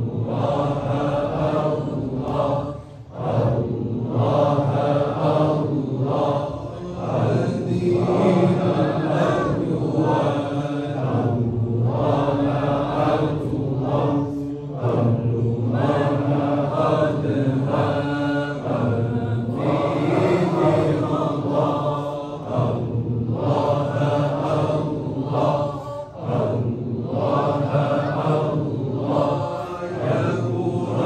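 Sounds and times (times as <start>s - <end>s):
men chanting in unison: 0.0s - 31.0s.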